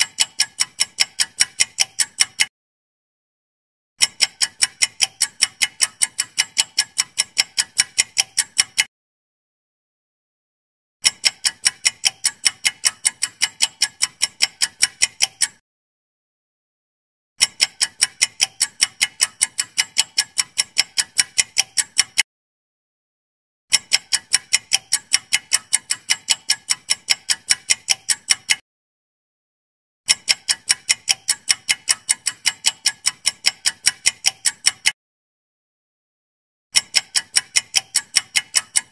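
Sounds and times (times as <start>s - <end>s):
fast clock ticks: 0.0s - 2.5s, 4.0s - 8.9s, 11.0s - 15.6s, 17.4s - 22.3s, 23.7s - 28.6s, 30.1s - 35.0s, 36.8s - 38.9s.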